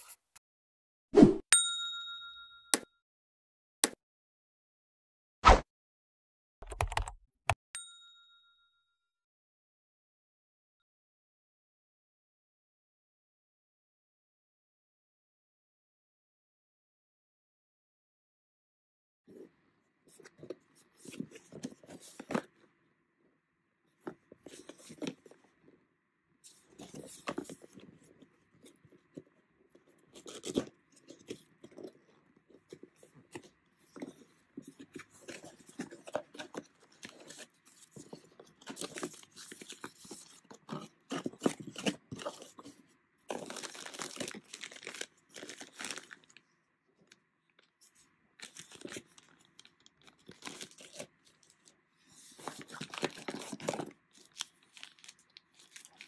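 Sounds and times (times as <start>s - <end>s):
plastic bag crinkling: 43.3s - 46.4s, 48.4s - 51.7s, 52.3s - 56.0s.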